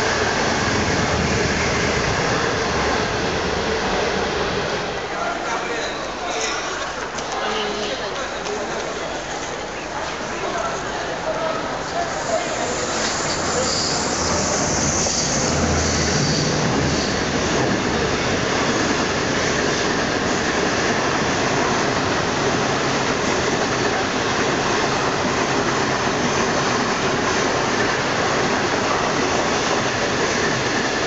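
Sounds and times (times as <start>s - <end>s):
train wheels rumbling on rails: 11.6s - 31.0s.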